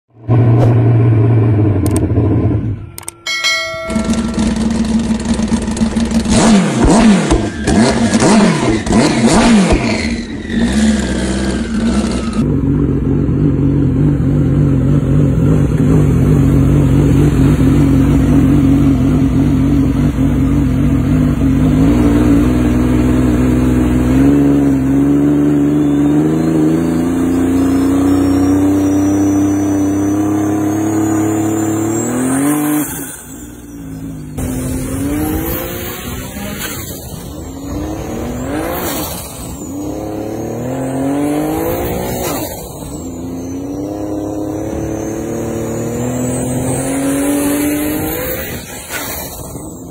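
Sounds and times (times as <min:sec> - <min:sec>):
turbo whistle: 0:25.0 - 0:34.3, 0:37.6 - 0:47.4.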